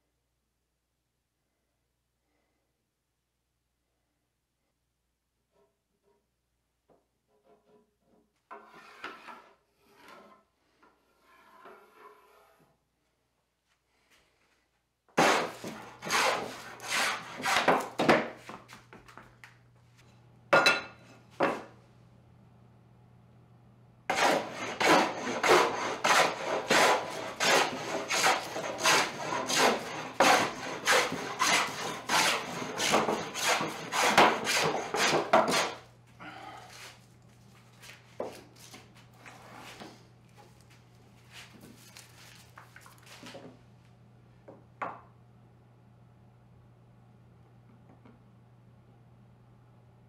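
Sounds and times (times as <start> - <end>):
scrub plane strokes on wood: 8.6 - 12.7, 15.2 - 18.0, 24.1 - 35.8.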